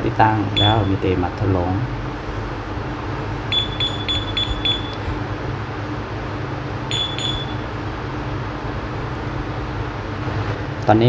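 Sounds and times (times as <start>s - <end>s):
motorcycle alarm beeping: 0.6s - 1.0s, 3.5s - 5.1s, 6.9s - 7.7s.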